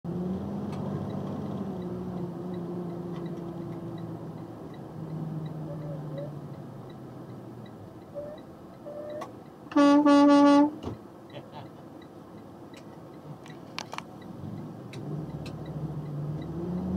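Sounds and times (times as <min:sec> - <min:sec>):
faint regular ticking: 0:00.7 - 0:09.7, 0:11.2 - 0:16.6
truck air horn blast: 0:09.7 - 0:10.8.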